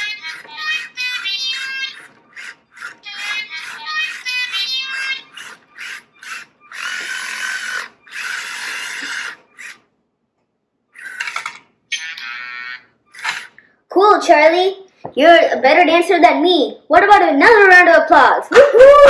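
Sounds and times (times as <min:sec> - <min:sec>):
electronic robot sounds: 0:00.0 - 0:09.8, 0:10.9 - 0:13.6
robot whirring: 0:00.0 - 0:09.9, 0:11.0 - 0:12.1, 0:13.1 - 0:13.6.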